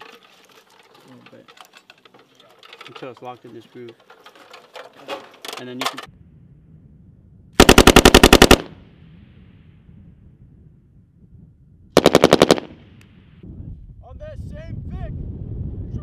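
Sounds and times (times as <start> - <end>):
machine gun bursts: 7.6 - 8.7, 12.0 - 12.7
gunfire echo: 7.6 - 9.0, 12.0 - 13.0.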